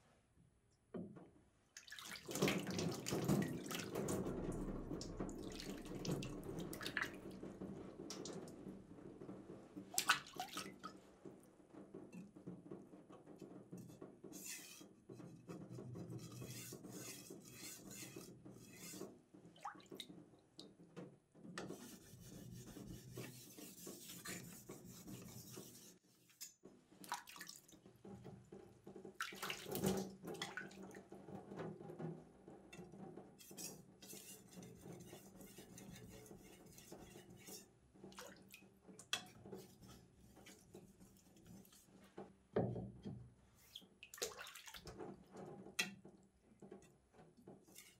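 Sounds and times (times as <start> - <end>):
water dripping and splashing: 1.7 - 8.7, 9.8 - 11.4, 16.3 - 20.8, 22.3 - 28.2, 29.0 - 31.4, 33.5 - 41.9, 43.6 - 46.0
knife scraping on whetstone: 16.2 - 19.0, 21.7 - 26.0.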